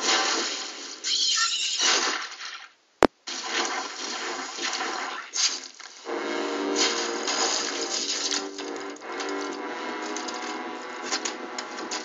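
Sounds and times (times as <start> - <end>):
steady low tone: 6.1 - 12.0.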